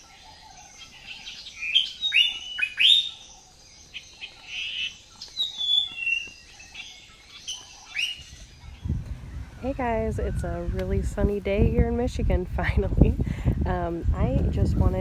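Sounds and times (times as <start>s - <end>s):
songbirds chirping: 0.0s - 15.0s.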